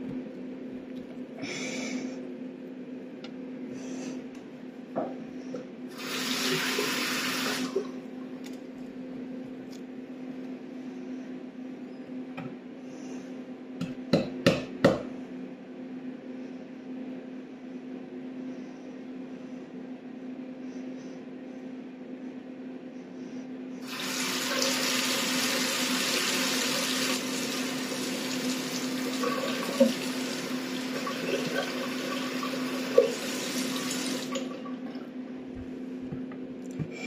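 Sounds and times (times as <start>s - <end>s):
steady low hum: 0.0s - 6.0s, 7.7s - 23.9s, 34.4s - 37.0s
water running into a sink: 6.0s - 7.8s, 23.8s - 34.9s.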